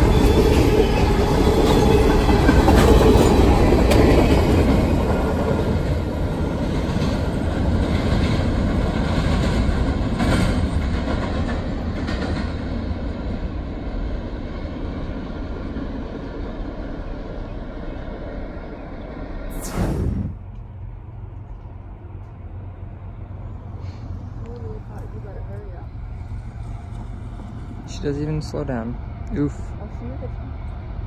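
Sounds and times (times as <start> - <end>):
rail clacks: 0.0 - 16.5
train wheels rumbling: 0.0 - 31.0.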